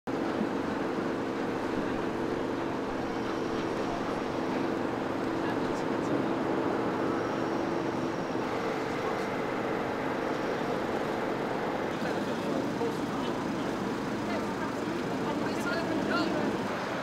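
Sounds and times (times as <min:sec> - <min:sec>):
road traffic: 0:00.1 - 0:17.0.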